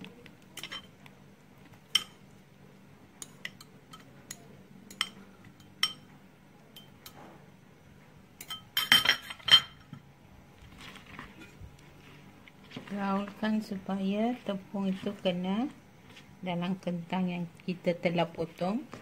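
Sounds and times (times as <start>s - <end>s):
metal fork clinking on glass bowls: 3.2s - 6.1s, 6.8s - 7.2s, 8.4s - 9.8s.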